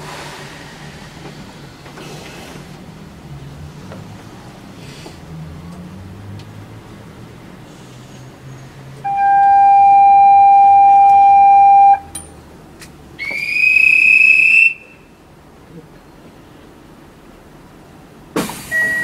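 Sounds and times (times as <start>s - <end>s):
shrill whistle blast: 13.2s - 15.0s, 18.7s - 19.0s.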